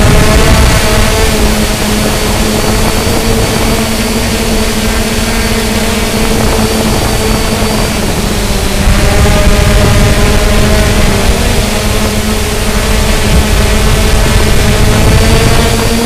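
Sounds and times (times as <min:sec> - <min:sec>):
drone propellers whirring: 0:00.0 - 0:16.0.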